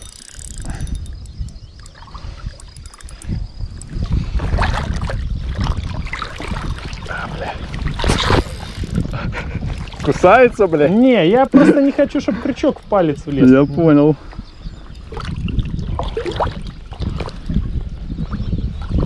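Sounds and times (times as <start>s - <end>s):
wind rumbling on microphone: 0.0s - 19.0s
fish thrashing in water: 3.8s - 10.3s, 15.0s - 17.6s.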